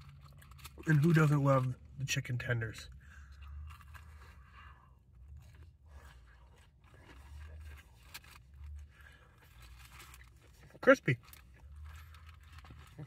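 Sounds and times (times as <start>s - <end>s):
crunching and chewing: 0.0s - 13.0s.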